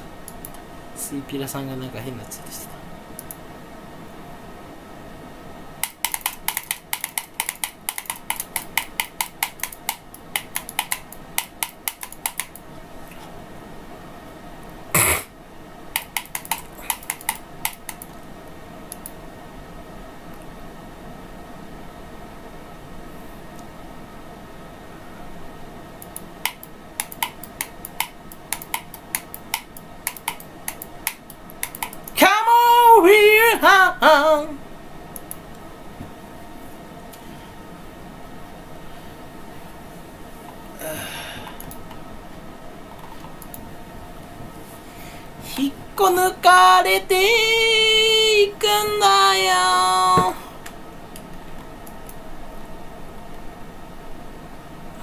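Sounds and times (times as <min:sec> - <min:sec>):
faint background hum: 0:00.0 - 0:55.0
keyboard typing: 0:05.8 - 0:12.6, 0:16.0 - 0:18.2, 0:26.0 - 0:32.2.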